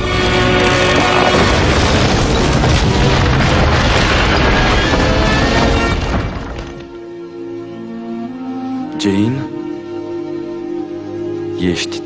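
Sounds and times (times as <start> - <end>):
music: 0.0 - 12.0
crash of falling rubble: 0.4 - 7.0.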